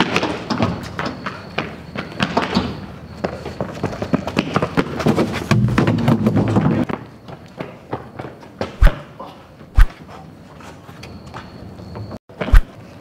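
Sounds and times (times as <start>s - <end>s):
running footsteps on concrete: 0.0s - 9.0s.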